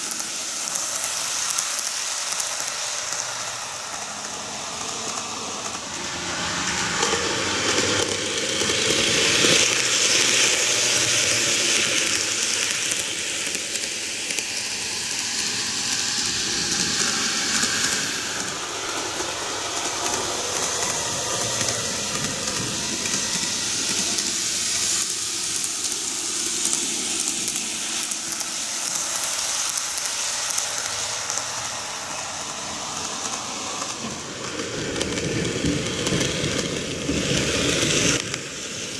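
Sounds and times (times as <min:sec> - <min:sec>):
model train rolling: 0:00.0 - 0:38.9.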